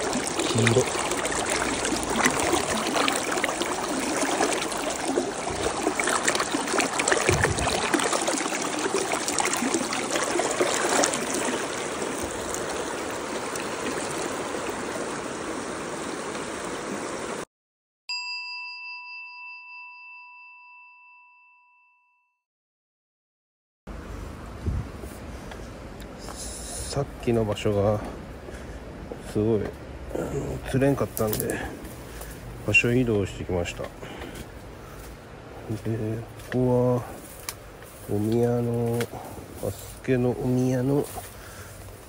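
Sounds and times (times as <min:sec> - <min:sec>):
river water rushing over rocks: 0:00.0 - 0:17.4.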